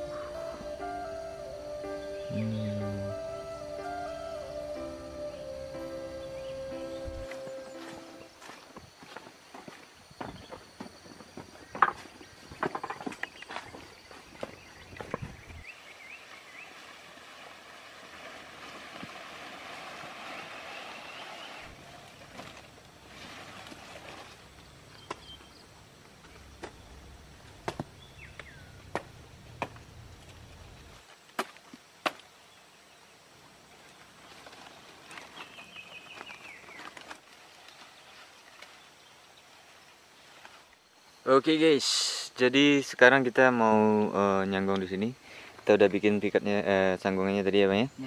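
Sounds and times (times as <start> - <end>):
short high calls: 0.0 - 8.2
leaves and branches rustling: 3.6 - 41.8.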